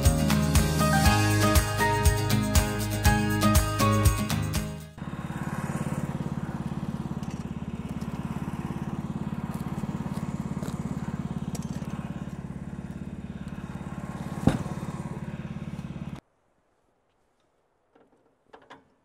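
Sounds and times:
sawmill engine idling: 0:05.0 - 0:16.2.

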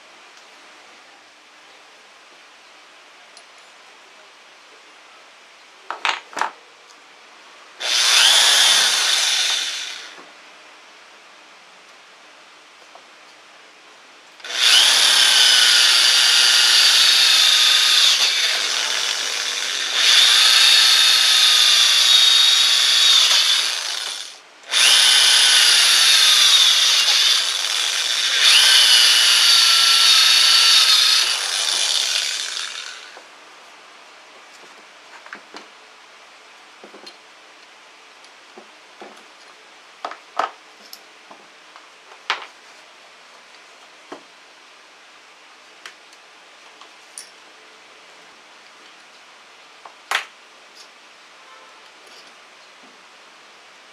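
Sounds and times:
electric drill boring into wood: 0:07.8 - 0:10.2, 0:14.4 - 0:33.2.

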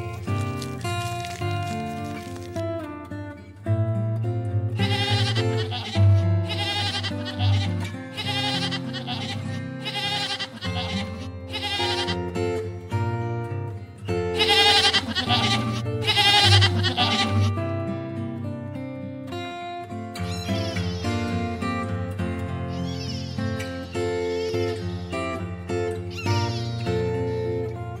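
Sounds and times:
goats bleating: 0:00.0 - 0:02.5, 0:04.8 - 0:12.4, 0:14.3 - 0:17.6
instrumental background music: 0:04.6 - 0:18.2.

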